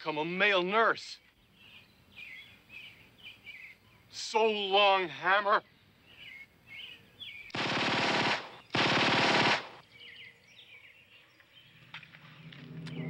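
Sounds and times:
automatic gunfire bursts: 7.5 - 9.8.

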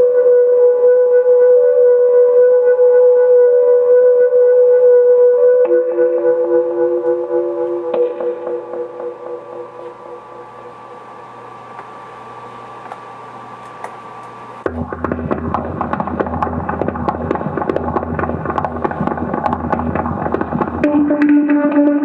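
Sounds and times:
low steady hum: 5.8 - 22.0
dense crackle of rapid clicks: 14.7 - 20.8.

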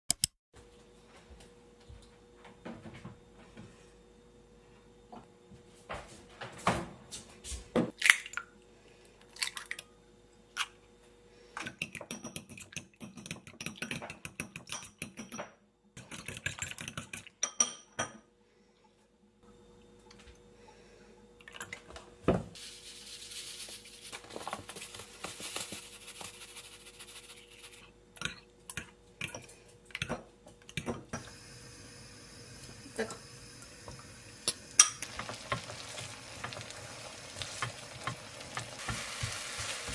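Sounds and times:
egg sizzling in frying pan: 31.2 - 39.9.

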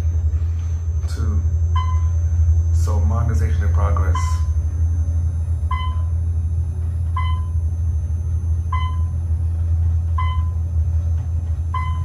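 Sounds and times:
elevator rumble: 0.0 - 12.0
electronic elevator ding: 1.2 - 2.3, 4.0 - 4.6, 5.7 - 6.2, 7.0 - 9.4, 10.1 - 10.9, 11.6 - 12.0.

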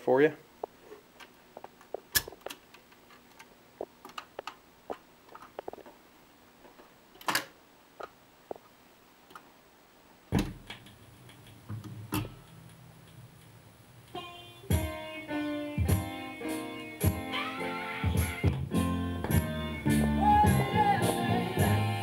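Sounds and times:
music from record player: 14.1 - 22.0
record groove rumble: 18.0 - 22.0.

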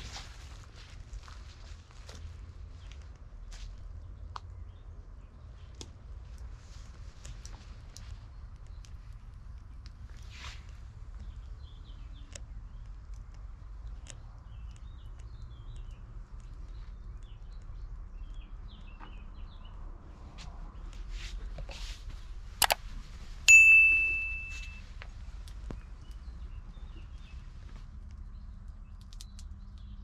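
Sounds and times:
small bird chirps: 8.0 - 19.8, 25.6 - 30.0
sharp click: 22.6 - 22.8
bright bell ding: 23.5 - 24.8.

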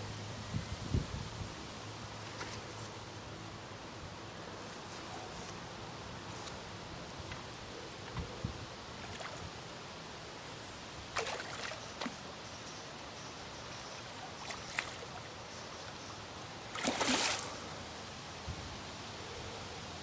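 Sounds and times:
fish splashing at the surface: 11.1 - 12.2, 14.4 - 15.3, 16.7 - 17.7.

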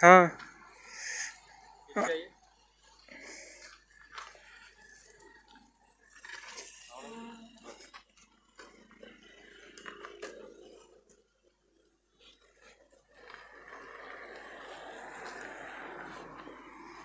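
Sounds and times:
compressed air hissing into tyre: 0.7 - 1.6.

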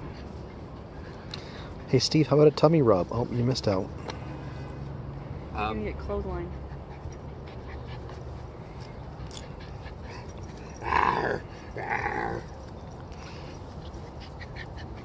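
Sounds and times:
puppy play growls: 9.5 - 12.7.

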